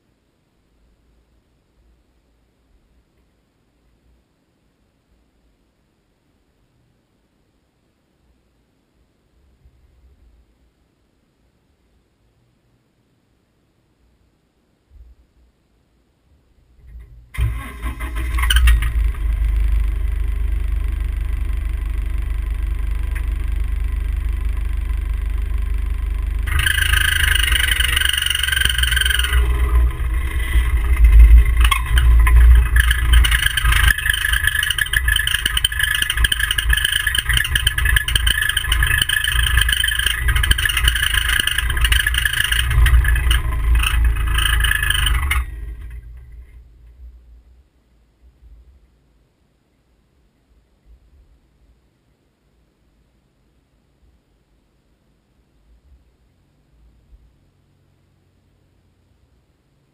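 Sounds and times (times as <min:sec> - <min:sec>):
vehicle engine rumbling: 0:16.7 - 0:47.5
rough high-pitched noise: 0:17.4 - 0:46.6.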